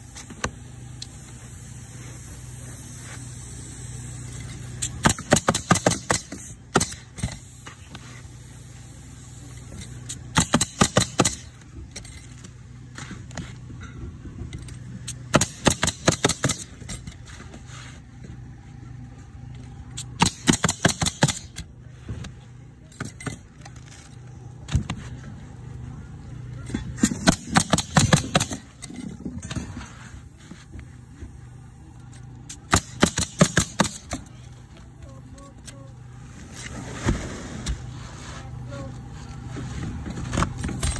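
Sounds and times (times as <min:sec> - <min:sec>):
steady low hum: 0:00.0 - 0:40.9
nail gun shots: 0:05.0 - 0:07.4, 0:10.3 - 0:11.5, 0:15.3 - 0:16.7, 0:20.2 - 0:21.6, 0:27.0 - 0:28.7, 0:32.6 - 0:34.3.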